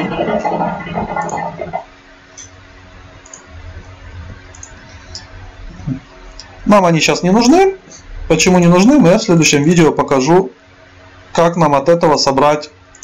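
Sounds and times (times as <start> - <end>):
computer mouse clicking: 1.1 - 1.5, 3.2 - 3.5, 4.5 - 5.3.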